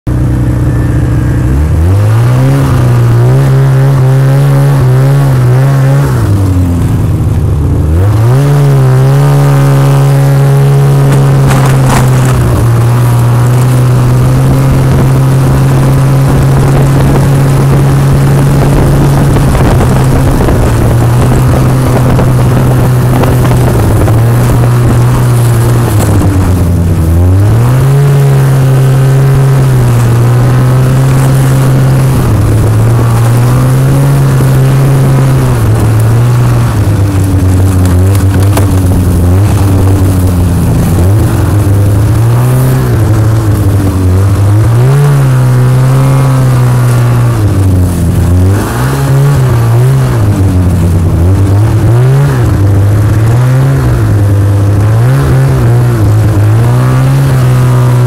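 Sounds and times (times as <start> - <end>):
snowmobile engine revving: 0.1 - 58.0.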